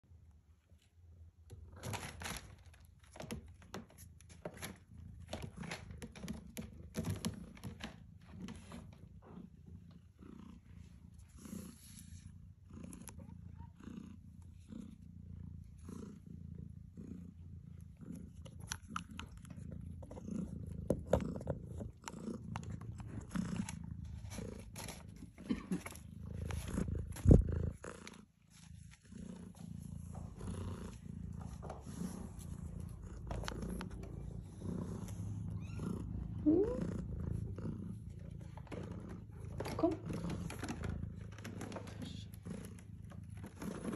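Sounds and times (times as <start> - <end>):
cat purring: 0.1 - 43.9
clicks and knocks of cats moving: 1.5 - 9.1, 38.4 - 43.9.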